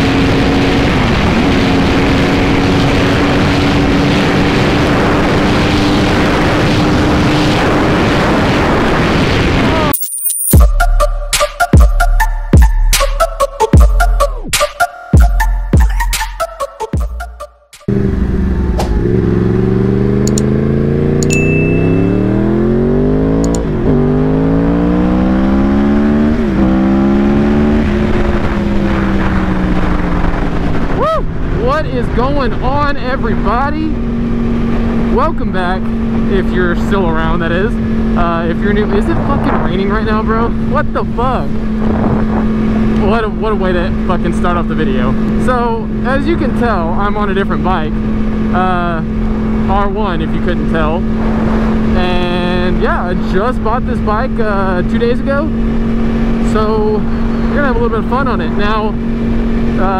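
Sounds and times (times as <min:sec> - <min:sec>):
motorcycle engine at high speed: 0:00.0 - 0:09.9, 0:17.8 - 0:59.9
wind noise: 0:00.0 - 0:10.0, 0:18.6 - 0:43.9, 0:50.6 - 0:59.9.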